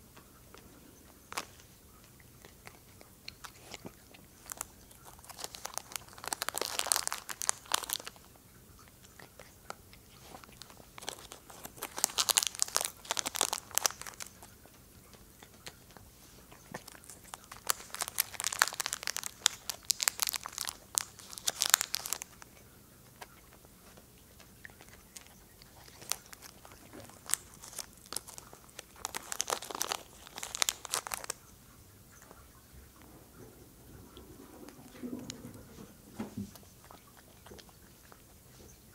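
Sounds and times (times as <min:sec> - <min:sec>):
cat crunching treats: 0:00.0 - 0:38.9
foil packet crinkling: 0:04.4 - 0:08.3, 0:10.2 - 0:14.7, 0:16.5 - 0:31.5.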